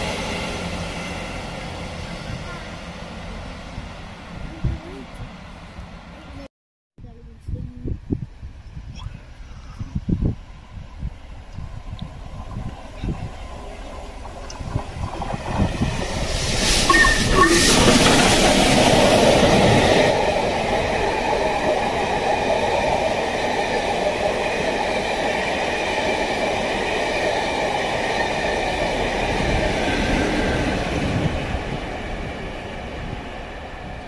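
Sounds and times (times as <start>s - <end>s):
steam locomotive passing: 0.0s - 6.5s, 10.4s - 34.0s
wheels on rails: 11.4s - 31.4s.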